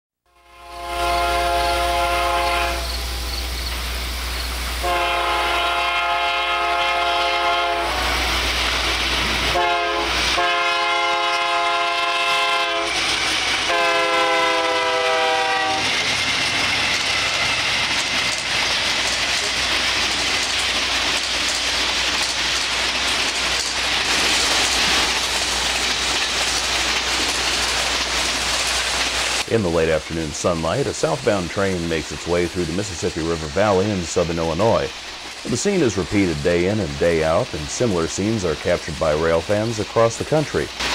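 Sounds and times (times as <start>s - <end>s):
locomotive air horn: 0.3s - 3.3s, 4.8s - 8.4s, 9.5s - 13.0s, 13.6s - 15.9s
train rolling past: 0.3s - 40.9s.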